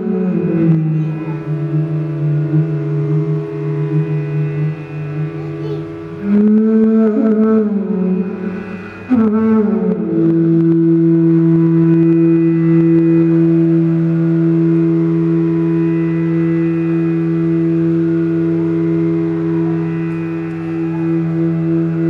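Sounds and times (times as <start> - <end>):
bamboo flutes playing: 0.0 - 22.0
steady drone: 0.0 - 22.0.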